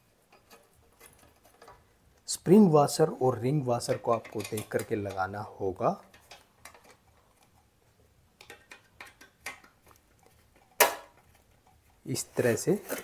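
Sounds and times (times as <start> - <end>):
small metallic clicks and taps: 6.0 - 7.7, 8.4 - 11.9.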